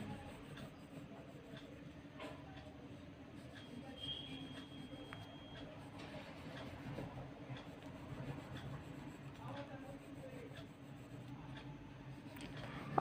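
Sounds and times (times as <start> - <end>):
pencil scratching on paper: 0.0 - 11.3.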